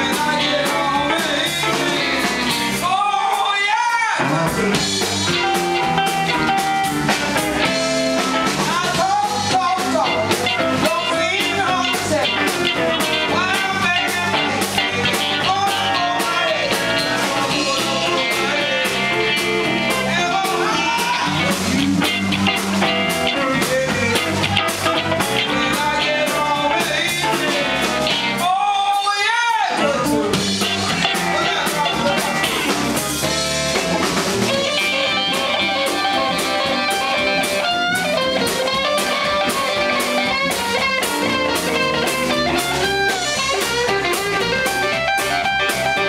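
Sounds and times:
electric bass: 0.0 - 3.5, 4.1 - 28.6, 29.8 - 46.0
woman singing: 0.0 - 3.7, 10.8 - 19.3
electric guitars: 0.0 - 29.1, 29.7 - 46.0
drum kit: 0.0 - 46.0.

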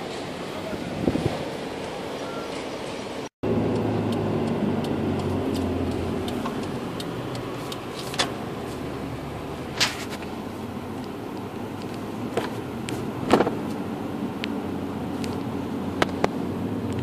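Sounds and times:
car driving on highway: 0.0 - 17.0
wind noise on microphone: 0.7 - 1.6
light ticks: 3.7 - 8.4.

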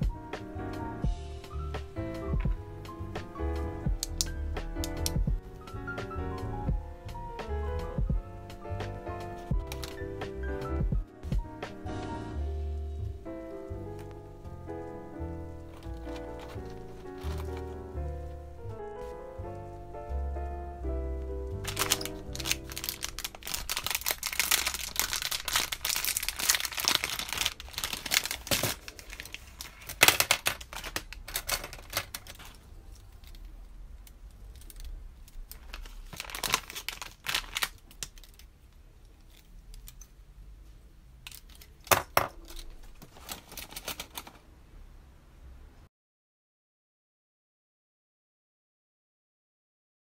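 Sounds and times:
background music: 0.0 - 28.4
pens rustling and clattering: 9.3 - 10.1, 15.6 - 17.9, 21.6 - 40.1, 41.2 - 44.5.

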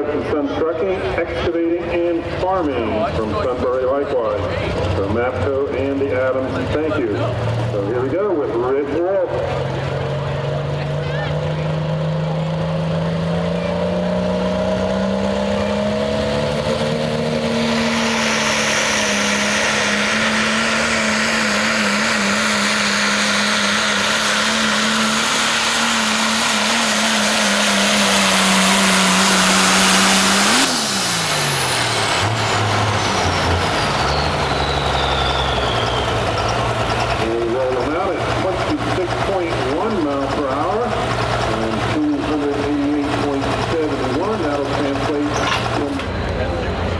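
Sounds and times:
diesel pickup engine at high revs: 0.0 - 46.9.

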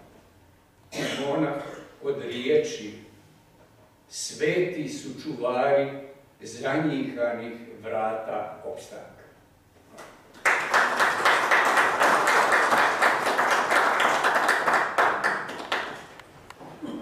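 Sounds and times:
audience applauding: 10.3 - 16.2.

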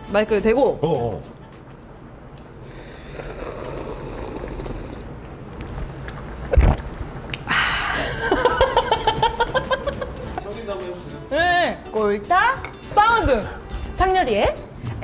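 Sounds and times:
person slurping broth: 2.7 - 5.2
woman laughing: 7.9 - 10.3.

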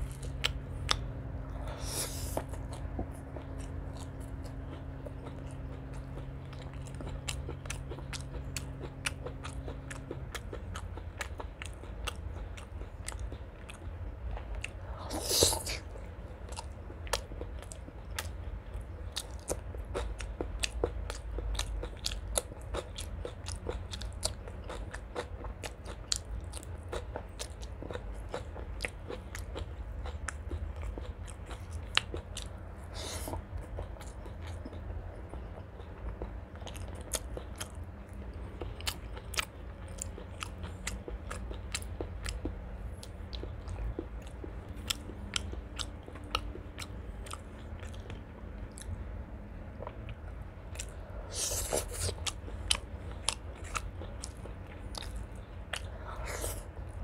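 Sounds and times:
wet chewing clicks: 0.0 - 49.0, 49.7 - 57.0
low steady hum: 0.0 - 57.0.

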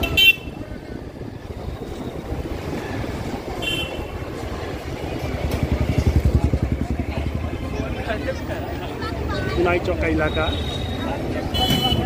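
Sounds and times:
wind buffeting microphone: 0.0 - 7.5
street traffic rumble: 0.0 - 12.0.

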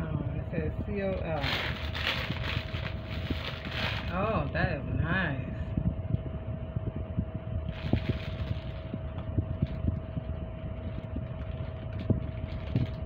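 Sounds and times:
faint steady hum: 0.0 - 13.0
low steady rumble: 0.0 - 13.0
plastic bag crinkle: 1.3 - 4.6, 7.7 - 8.9, 10.8 - 13.0.

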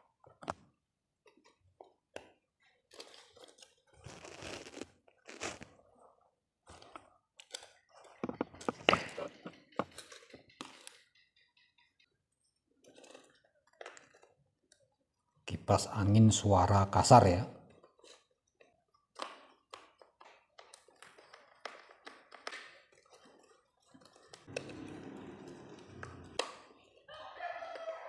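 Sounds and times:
plastic parts crunching and knocking: 7.9 - 10.8.

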